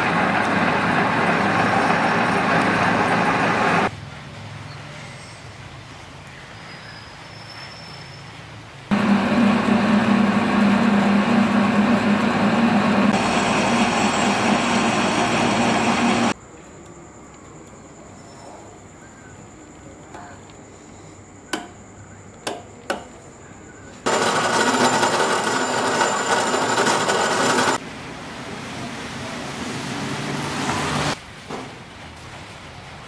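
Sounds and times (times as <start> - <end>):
bandsaw cutting steel pipe: 24.1 - 27.8.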